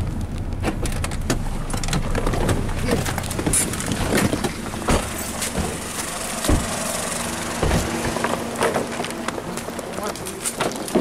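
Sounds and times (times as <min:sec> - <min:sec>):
steady low hum: 0:00.0 - 0:10.9
car door opening: 0:00.6 - 0:09.5
heavy thumps and footsteps: 0:02.0 - 0:09.7.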